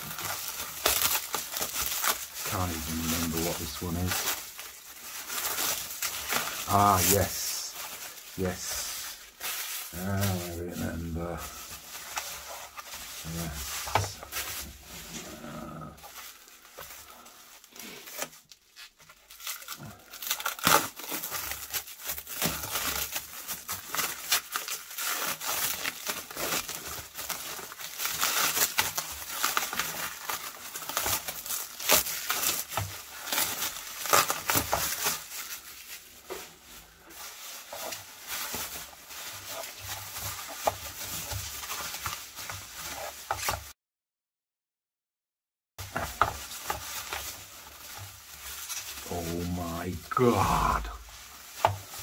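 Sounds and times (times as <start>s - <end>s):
bubble wrap rustling: 0.0s - 43.8s, 45.8s - 52.0s
cling film crackling: 0.1s - 18.3s, 46.2s - 52.0s.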